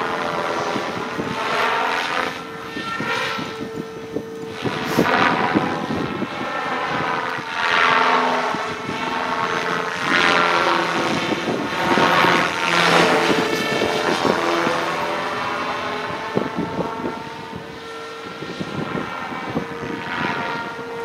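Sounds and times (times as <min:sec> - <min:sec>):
helicopter motor whine and rotor: 0:00.0 - 0:21.0.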